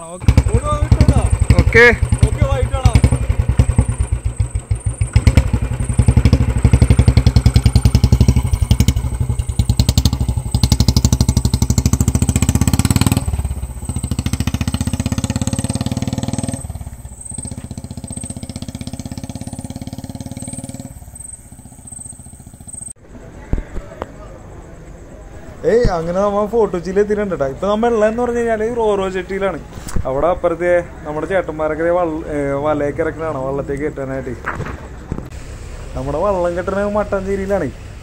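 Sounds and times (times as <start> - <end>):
motorcycle engine riding off: 0.0 - 23.0.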